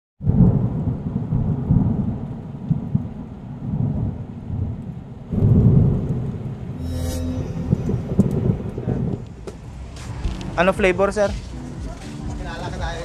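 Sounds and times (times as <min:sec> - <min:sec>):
rain: 0:00.2 - 0:06.8
rolling thunder: 0:00.2 - 0:06.8.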